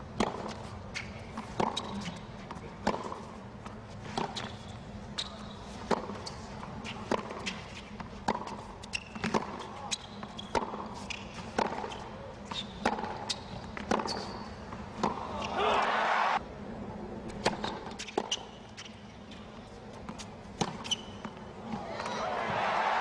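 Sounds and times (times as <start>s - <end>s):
shoe squeaks on court: 0.9s - 2.3s, 4.2s - 6.5s, 8.8s - 14.5s, 17.6s - 19.4s, 20.6s - 21.4s
racket hitting tennis ball: 8.2s - 9.7s, 15.0s - 15.9s.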